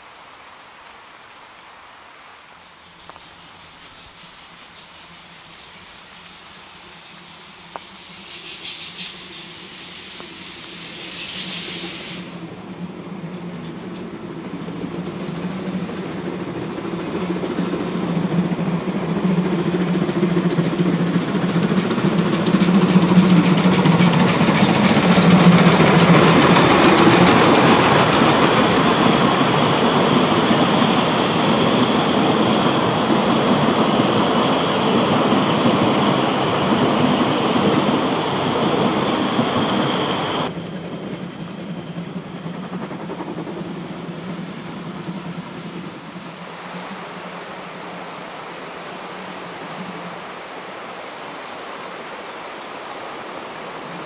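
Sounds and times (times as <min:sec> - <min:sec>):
train rumble: 0:02.7 - 0:54.0
train clattering on rails: 0:03.0 - 0:47.4
high-pitched squeal: 0:24.0 - 0:40.6.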